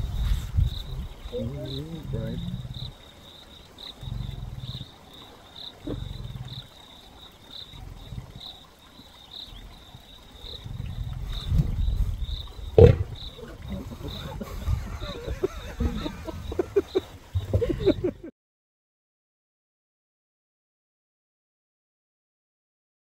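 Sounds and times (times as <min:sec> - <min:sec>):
lion growling and snarling: 0:00.0 - 0:07.0, 0:07.6 - 0:08.8, 0:09.4 - 0:18.2
high insect chirp: 0:00.0 - 0:18.3.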